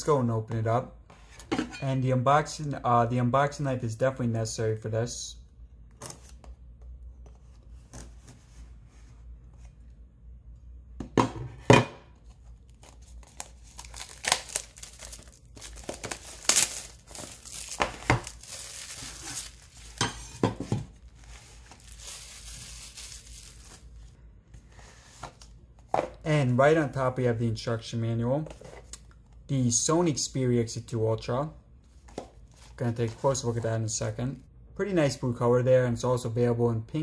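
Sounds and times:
plastic wrap crinkling: 0:12.6 - 0:20.1, 0:20.9 - 0:24.1
cleaver cutting plastic wrap: 0:13.3 - 0:20.0.

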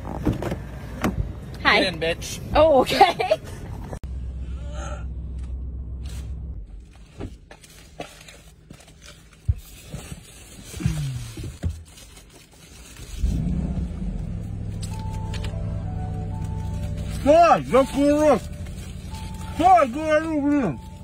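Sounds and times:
paper wrapper crinkling: 0:06.8 - 0:13.6, 0:14.7 - 0:21.0.

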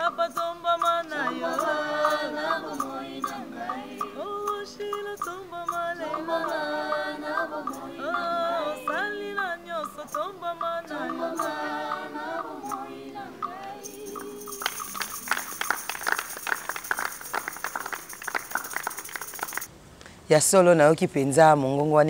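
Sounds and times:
choir singing a hymn: 0:00.0 - 0:16.5
group hand clapping: 0:01.1 - 0:04.0, 0:13.4 - 0:19.7.

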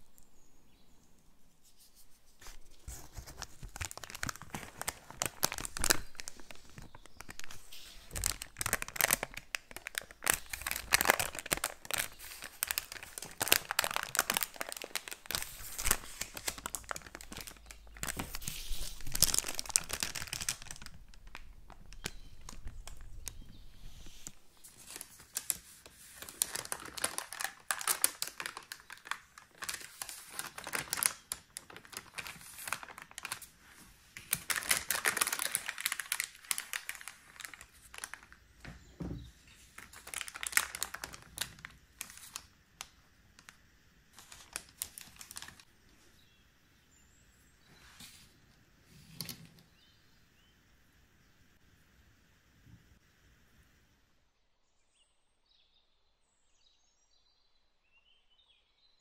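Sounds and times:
baking paper crinkling: 0:01.6 - 0:45.7.

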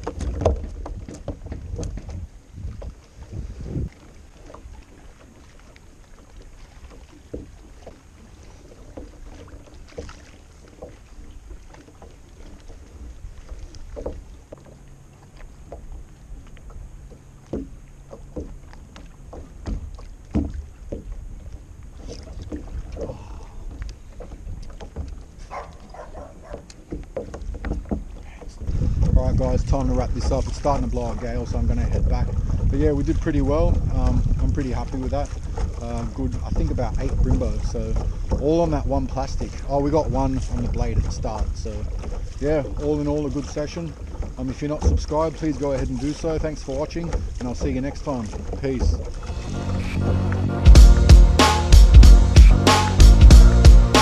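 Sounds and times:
wind on microphone: 0:00.0 - 0:04.8, 0:28.3 - 0:42.4
water lapping against hull: 0:00.0 - 0:54.0.

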